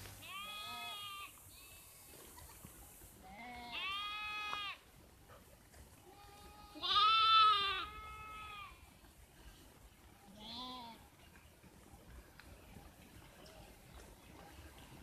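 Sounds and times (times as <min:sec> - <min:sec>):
sheep bleating: 0:00.2 - 0:01.8, 0:03.3 - 0:04.8, 0:06.1 - 0:08.8.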